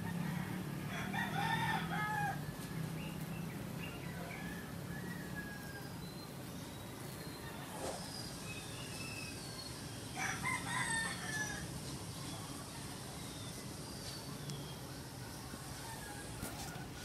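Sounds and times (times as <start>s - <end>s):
rooster crowing: 0.0s - 3.1s, 3.8s - 6.0s, 10.2s - 11.8s, 15.4s - 17.0s
faint high bird chirps: 2.7s - 16.8s.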